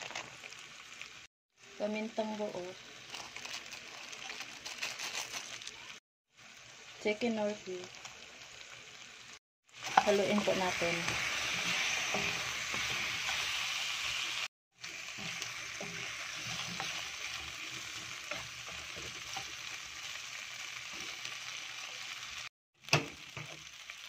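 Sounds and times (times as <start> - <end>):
food sizzling in hot oil: 0.0 - 24.0
spatula scraping a pan: 9.8 - 13.6, 15.0 - 19.7.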